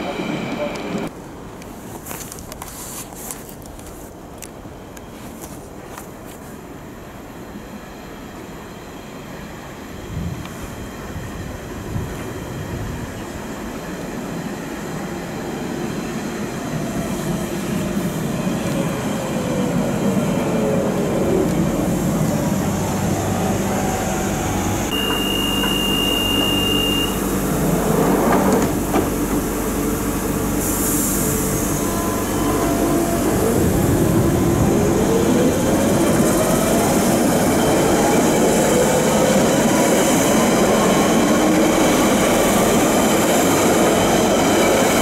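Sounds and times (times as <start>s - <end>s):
train motor whine: 22.8s - 37.2s
short high tone: 24.9s - 27.3s.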